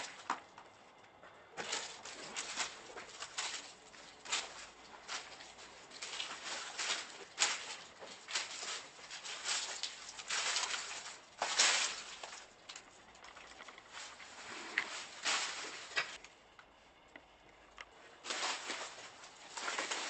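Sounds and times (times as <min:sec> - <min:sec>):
footsteps crunching over rubble: 0:00.0 - 0:16.2, 0:18.0 - 0:20.0.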